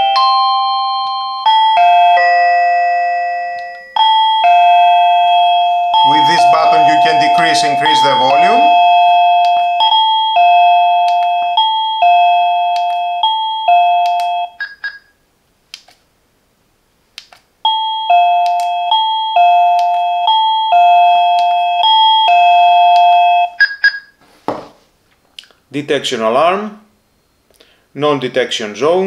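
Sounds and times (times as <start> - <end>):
doorbell ding-dong chime: 0.0 - 15.0, 17.7 - 23.7.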